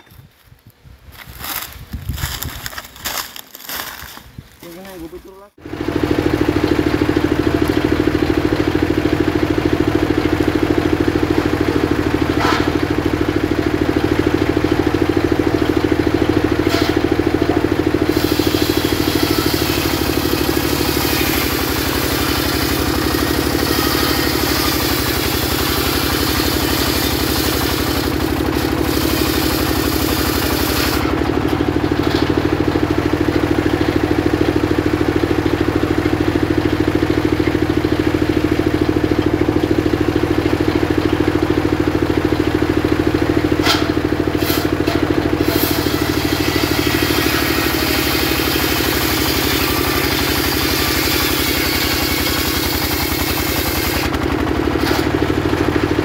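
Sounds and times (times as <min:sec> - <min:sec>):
engine-driven circular saw running: 0:01.1 - 0:56.0
saw blade hissing through log: 0:18.0 - 0:31.1, 0:43.6 - 0:54.1.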